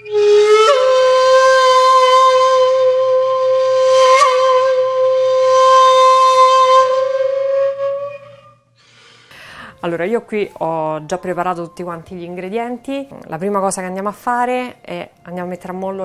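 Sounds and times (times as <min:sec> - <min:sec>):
long held wind instrument note: 0:00.0 - 0:08.6.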